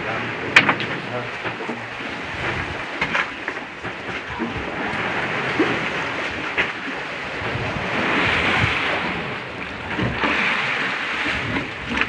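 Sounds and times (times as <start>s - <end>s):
water lapping against boat: 0.0s - 12.0s
wind on microphone: 0.0s - 12.0s.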